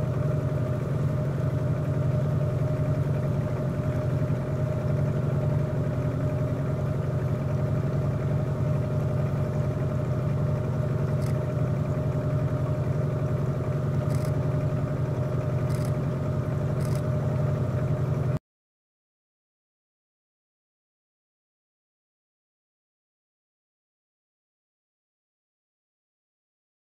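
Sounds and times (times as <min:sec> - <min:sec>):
engine idling: 0:00.0 - 0:18.4.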